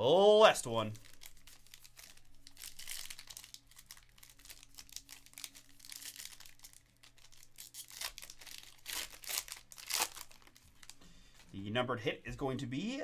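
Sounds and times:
foil pack crinkling and tearing: 0:00.7 - 0:11.0.

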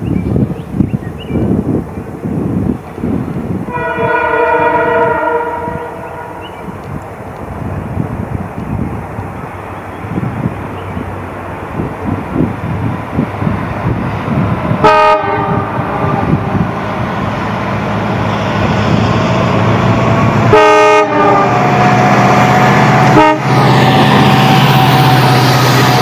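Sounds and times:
locomotive engine drone: 0:00.0 - 0:26.0
train wheel and wind noise: 0:00.0 - 0:26.0
train horn blasts: 0:03.7 - 0:06.7, 0:14.8 - 0:16.6, 0:20.5 - 0:25.7.

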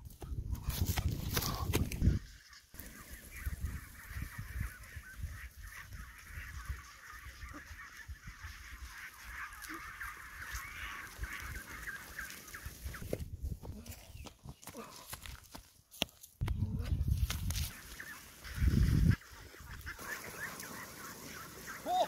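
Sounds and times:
ducks quacking: 0:02.1 - 0:13.0, 0:17.7 - 0:22.0.

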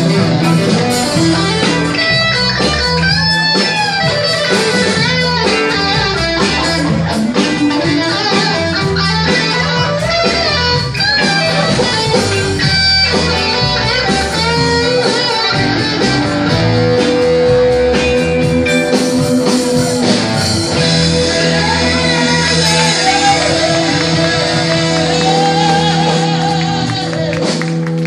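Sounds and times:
rock band with electric guitars: 0:00.0 - 0:28.0
person singing: 0:21.1 - 0:27.6.

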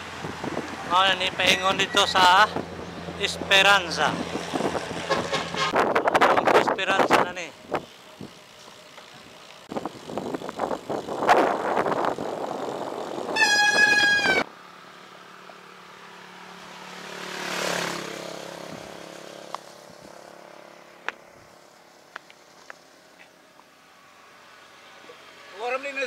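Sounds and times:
vehicle passing by: 0:00.0 - 0:05.8, 0:13.9 - 0:21.6
wind rushing on microphone: 0:00.0 - 0:08.4, 0:09.7 - 0:14.4, 0:18.6 - 0:19.0
vehicle horn blast: 0:05.1 - 0:05.8, 0:13.3 - 0:14.5.

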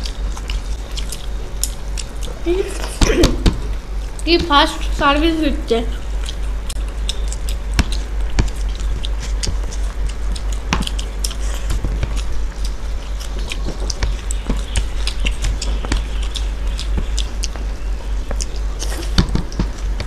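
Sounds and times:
people chewing food: 0:00.0 - 0:20.0
steady low hum: 0:00.0 - 0:20.0.

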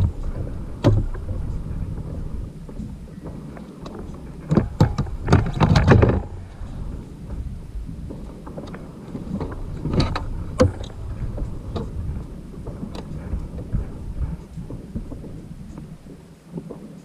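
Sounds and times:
low rumble: 0:00.0 - 0:16.9
gear knocking on plastic kayak: 0:00.0 - 0:17.0.

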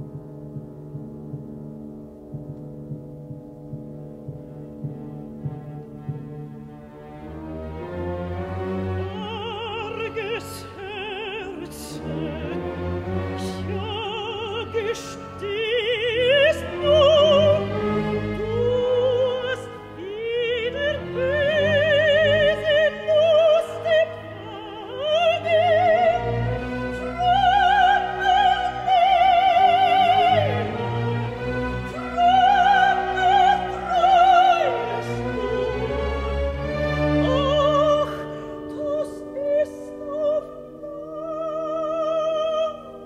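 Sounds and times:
orchestra playing: 0:00.0 - 0:43.0
soprano singing: 0:00.0 - 0:43.0.

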